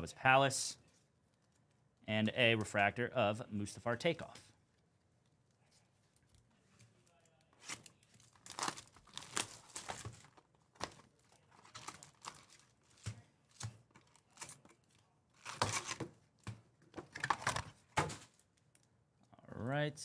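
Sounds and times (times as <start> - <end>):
foil packs crinkling: 7.6 - 13.0.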